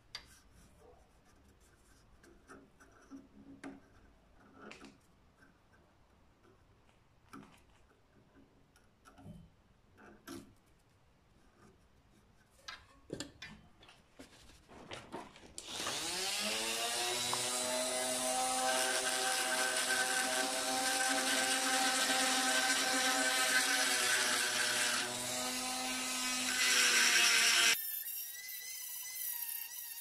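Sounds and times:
rotary tool whining: 15.6s - 30.0s.

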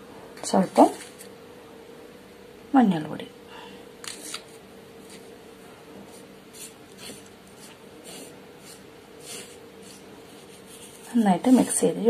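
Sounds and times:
low steady hum: 0.0s - 12.0s
fingers rubbing flour on a plate: 6.1s - 12.0s.

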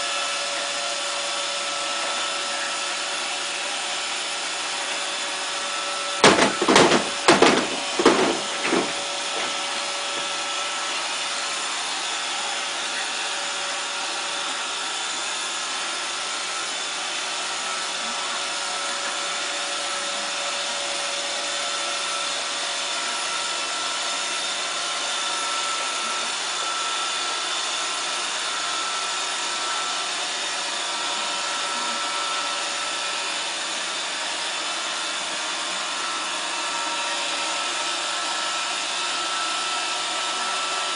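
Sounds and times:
robot vacuum whirring: 0.0s - 40.9s
sharp knocks: 6.2s - 9.6s.

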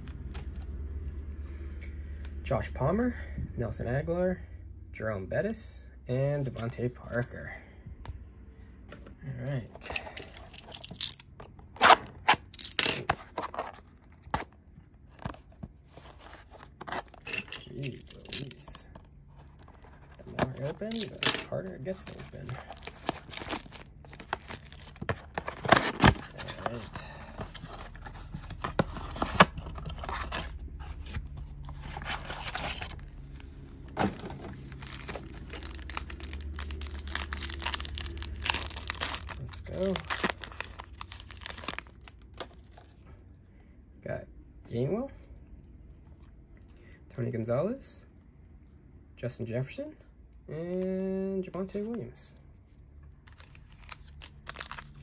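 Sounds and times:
card pack packaging tearing: 9.9s - 11.2s, 11.8s - 14.4s, 16.0s - 18.8s, 19.6s - 42.7s, 53.3s - 55.0s.

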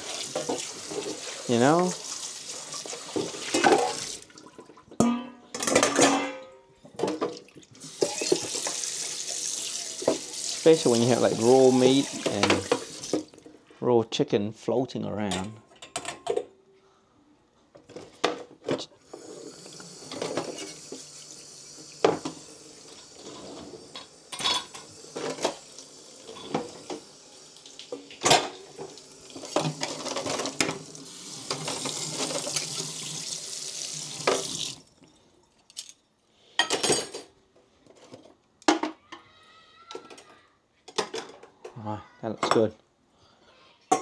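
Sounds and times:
dishes and cutlery clattering: 3.0s - 4.1s, 5.0s - 8.8s, 15.3s - 16.5s, 20.1s - 21.0s, 23.2s - 25.6s, 26.3s - 26.9s, 29.4s - 30.8s, 36.6s - 39.0s, 40.9s - 41.8s.

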